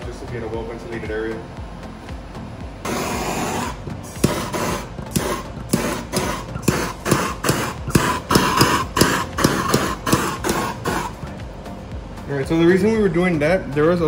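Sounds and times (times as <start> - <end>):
gas torch flame hissing: 2.8 - 11.4.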